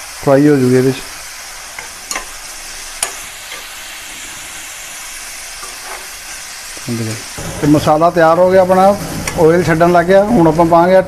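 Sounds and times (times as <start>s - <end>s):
onions sizzling in oil: 0.0s - 11.0s
ladle scraping and knocking pan: 5.6s - 6.1s, 7.4s - 9.9s.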